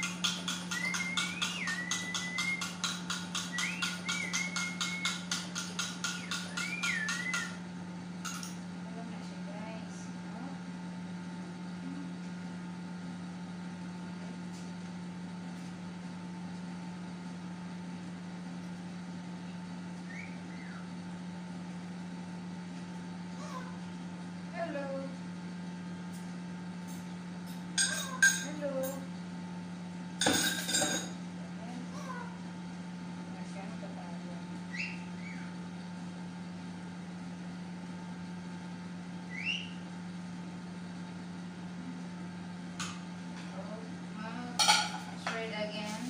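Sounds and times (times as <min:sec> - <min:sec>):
motor humming: 0:00.0 - 0:10.5
low mechanical hum: 0:00.0 - 0:46.0.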